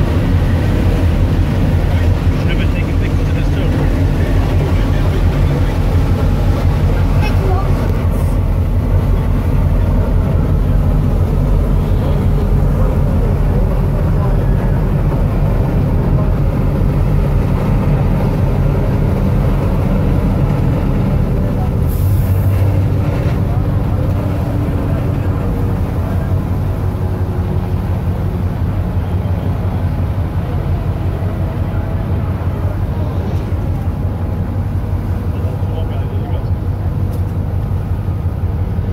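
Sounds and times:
boat diesel engine droning: 0.0 - 38.9
water rushing in wake: 0.0 - 38.9.

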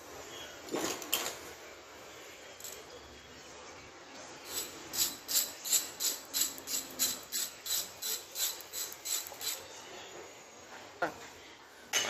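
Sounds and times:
ratchet wrench clicking: 4.5 - 9.6.

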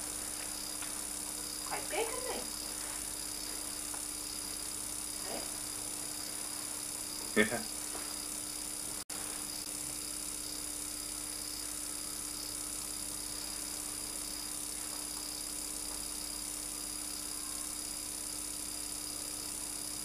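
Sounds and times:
electrical hum with hiss: 0.0 - 20.0
faint high whine: 0.0 - 20.0.

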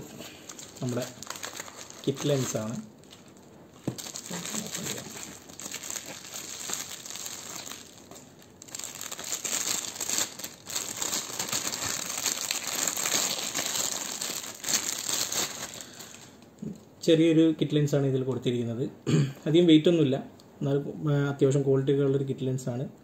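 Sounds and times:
bubble wrap and plastic bag crinkling: 0.0 - 16.5.

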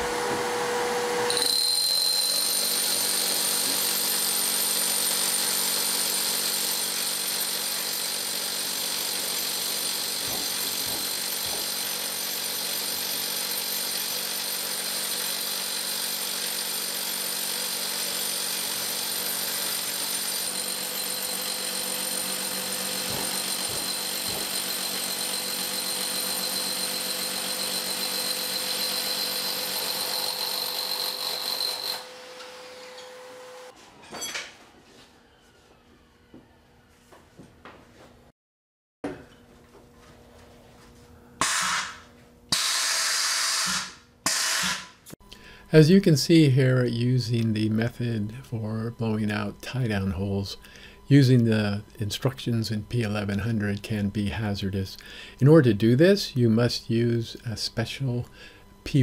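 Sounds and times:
vacuum whine: 0.0 - 1.4
rotary hammer drilling concrete: 1.3 - 33.1, 41.4 - 45.0.

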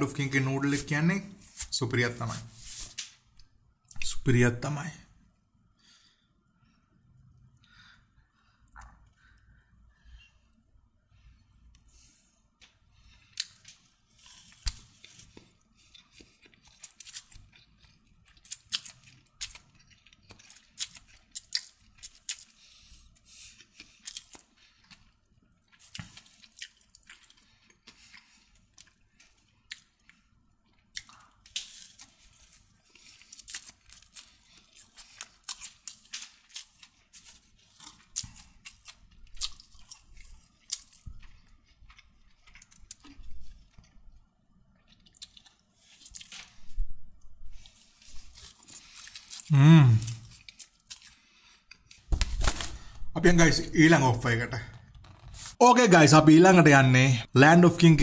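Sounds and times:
person chewing noodles: 5.7 - 52.1.

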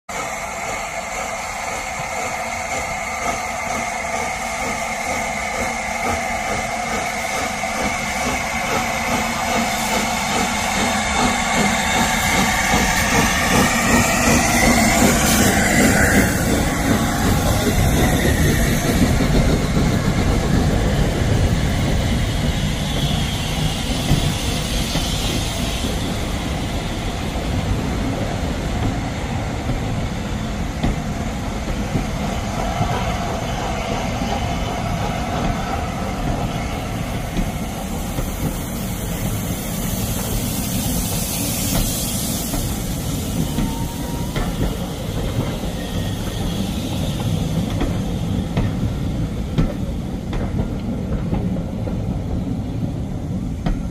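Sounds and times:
steam hissing: 0.1 - 53.9
train wheels on rails: 0.1 - 53.9.

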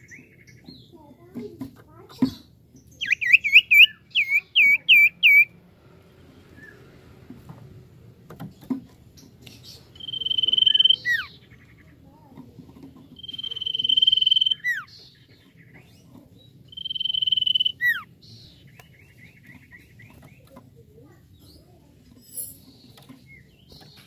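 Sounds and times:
bird chattering: 0.0 - 5.6, 9.2 - 24.0
bird whistling: 3.0 - 5.5, 10.0 - 11.4, 13.2 - 14.9, 16.7 - 18.1.

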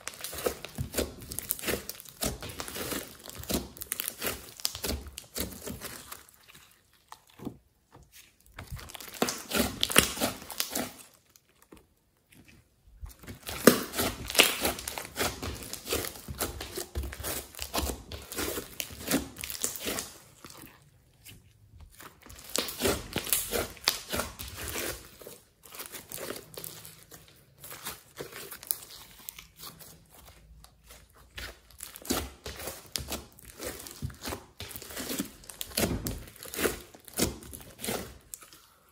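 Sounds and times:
slime squeezed wet crackling: 21.9 - 38.4.

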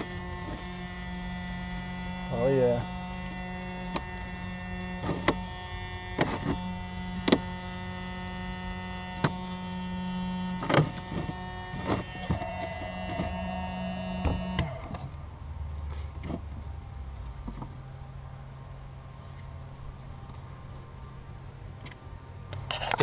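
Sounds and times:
bilge pump motor humming: 0.0 - 15.2.

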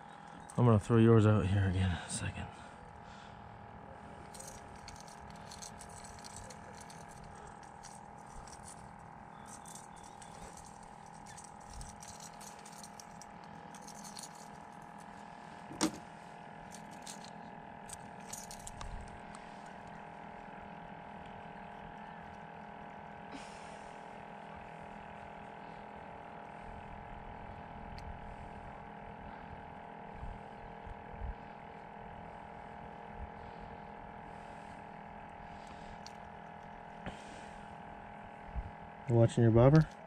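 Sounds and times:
steady hum: 0.0 - 40.0
fishing tackle clicks and rattles: 4.4 - 15.1, 16.7 - 19.2.

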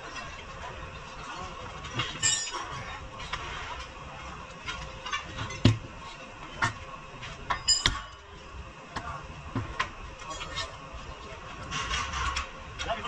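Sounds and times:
metal tools clinking and knocking: 2.0 - 2.8, 7.5 - 8.2
ringing metal clink: 2.2 - 2.7, 7.6 - 8.2.

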